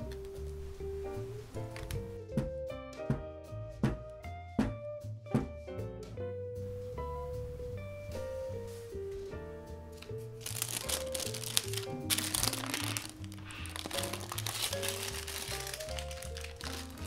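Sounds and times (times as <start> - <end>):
background music: 0.0 - 17.0
parchment paper crinkling: 10.4 - 17.0.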